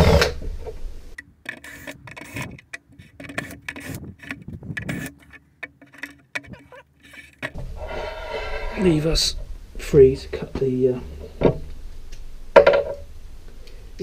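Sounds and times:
wooden clamp pieces clicking: 0:01.2 - 0:07.6.

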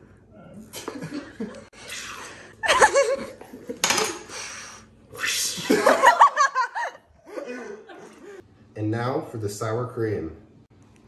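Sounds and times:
people laughing wheezily: 0:05.5 - 0:08.4.

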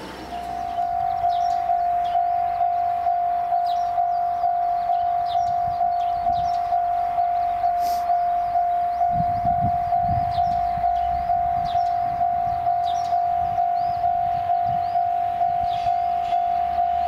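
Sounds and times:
train rumbling: 0:00.0 - 0:02.1
birds chirping: 0:00.0 - 0:17.0
level crossing bell ringing: 0:00.4 - 0:17.0.

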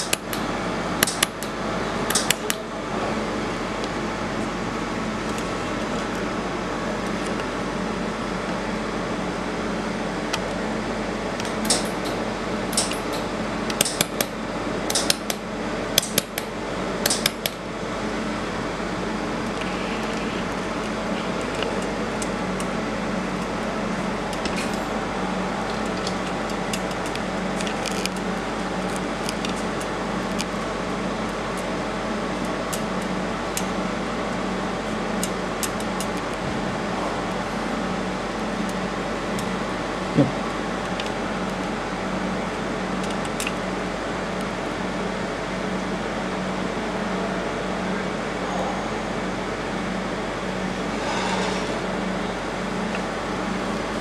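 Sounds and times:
cooling fan humming: 0:00.0 - 0:54.0
sharp metallic clicks: 0:01.0 - 0:02.6, 0:11.4 - 0:14.3, 0:14.9 - 0:15.4, 0:16.0 - 0:17.6.

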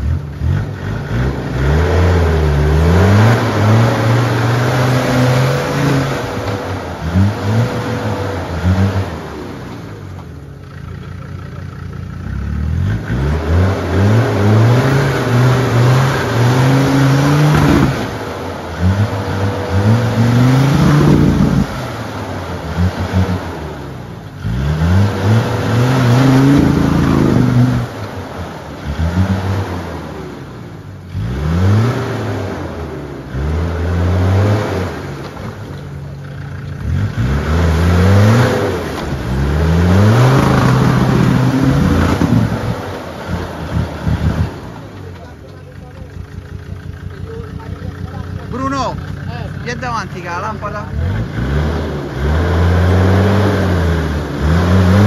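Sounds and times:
engine revving hard: 0:00.0 - 0:09.7, 0:12.3 - 0:35.2, 0:36.8 - 0:45.0, 0:49.8 - 0:55.0
wheels spinning in mud: 0:34.8 - 0:55.0.

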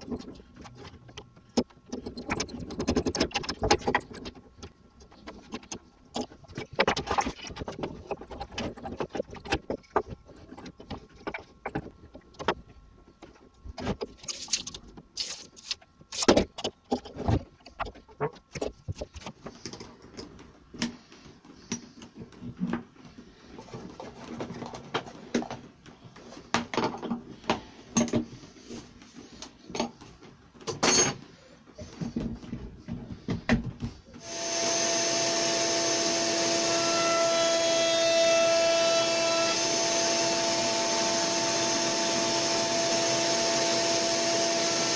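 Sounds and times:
tools and wood clicking and knocking: 0:00.0 - 0:22.9, 0:23.6 - 0:28.3, 0:29.4 - 0:34.0.

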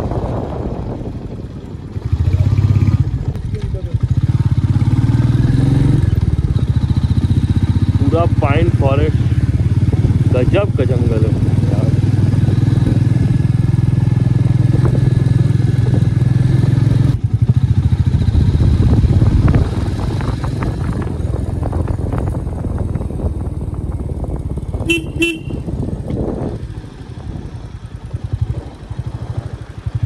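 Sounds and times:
motorcycle engine running: 0:00.0 - 0:30.0
horn toots: 0:24.8 - 0:25.7.

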